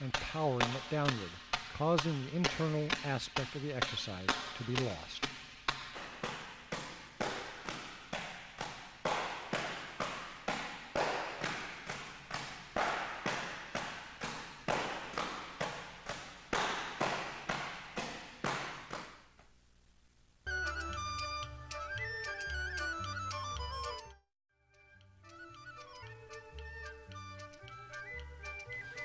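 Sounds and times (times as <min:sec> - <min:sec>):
palms slapping training bag: 0:00.0 - 0:19.4.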